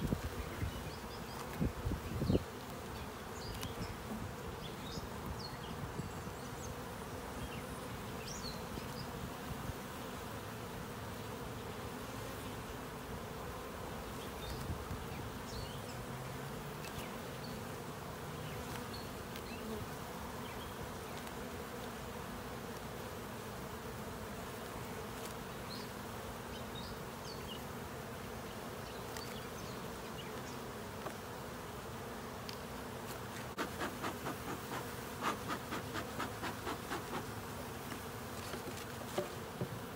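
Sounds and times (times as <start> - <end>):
bees buzzing: 0.0 - 39.9
bee smoker bellows puffing: 33.0 - 39.9.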